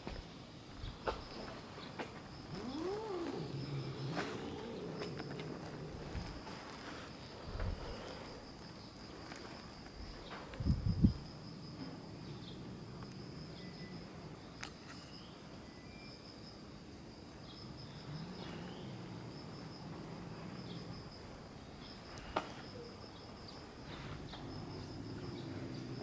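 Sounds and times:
insect trilling: 2.3s - 11.3s.

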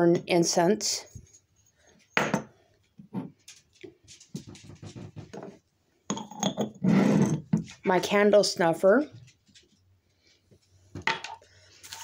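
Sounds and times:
faint taps and rustles of handling: 2.8s - 5.6s.

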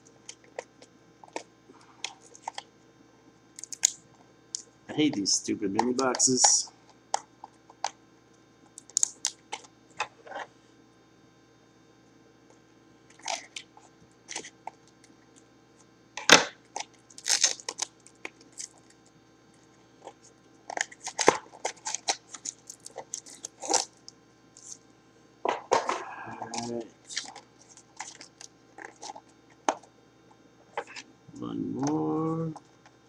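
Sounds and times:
cardboard tearing and crunching: 17.2s - 17.8s, 20.8s - 23.9s.

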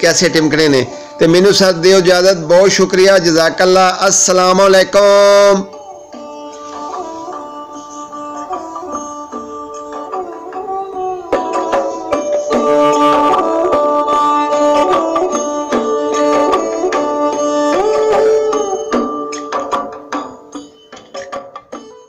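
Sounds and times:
sliding string notes: 0.0s - 20.4s
hand drum strokes: 8.8s - 21.9s.

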